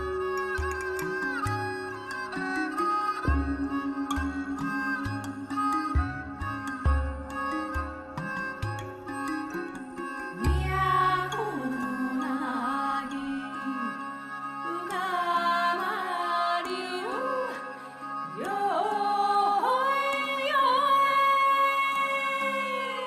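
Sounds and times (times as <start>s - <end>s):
melody with sliding ornaments: 0.0s - 15.3s.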